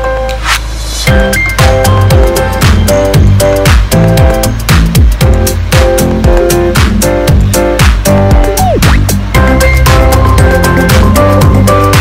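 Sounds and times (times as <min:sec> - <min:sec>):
held synth chords: 0:00.0 - 0:12.0
kick drum beat: 0:01.1 - 0:12.0.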